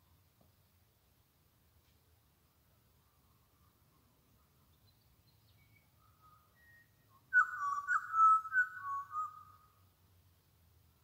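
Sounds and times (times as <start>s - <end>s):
bird fluting whistles: 6.6s - 9.6s.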